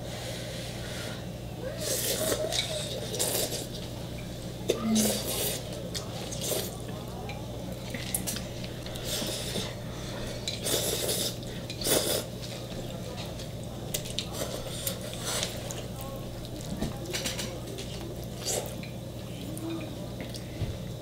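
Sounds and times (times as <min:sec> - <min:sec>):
steady low hum: 0:00.0 - 0:21.0
people slurping noodles: 0:00.9 - 0:03.8, 0:04.7 - 0:06.8, 0:07.9 - 0:12.4, 0:14.1 - 0:15.8.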